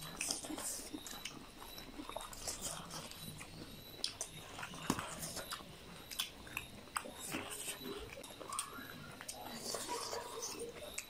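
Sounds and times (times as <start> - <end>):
people chewing food: 0.0 - 11.0
wet mouth clicks and smacks: 0.1 - 7.4.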